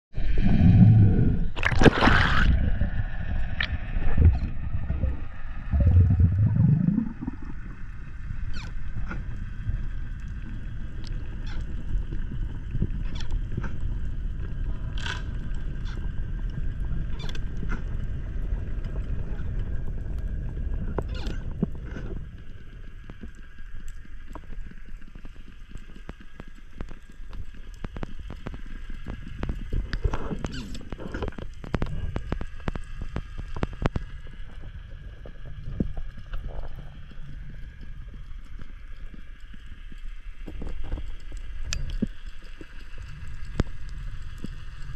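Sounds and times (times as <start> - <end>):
low underwater rumble: 0.1 - 44.9
water swishing and rushing: 0.1 - 44.9
sharp underwater clicks: 21.0 - 34.6, 35.7 - 44.9.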